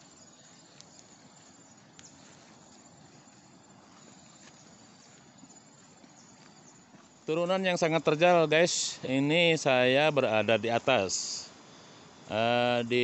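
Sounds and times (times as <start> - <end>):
quiet even hiss: 0.0 - 13.0
light ticks: 0.4 - 1.2, 1.9 - 2.8.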